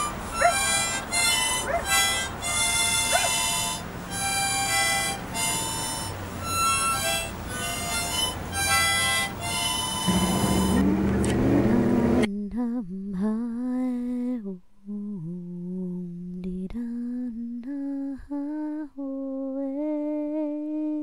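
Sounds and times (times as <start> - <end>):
harmonica playing: 0.0 - 12.3
person humming a slow tune: 10.0 - 14.3.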